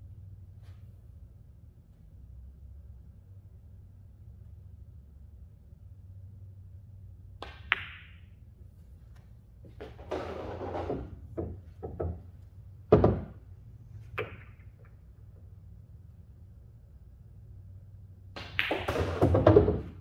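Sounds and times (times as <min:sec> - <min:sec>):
billiard balls clacking: 0:09.7 - 0:12.3, 0:12.9 - 0:13.4, 0:14.0 - 0:15.1, 0:18.4 - 0:20.0.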